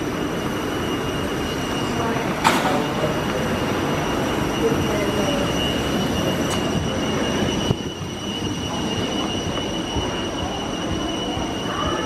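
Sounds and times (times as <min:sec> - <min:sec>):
aircraft rumble and whine: 0:00.0 - 0:12.0.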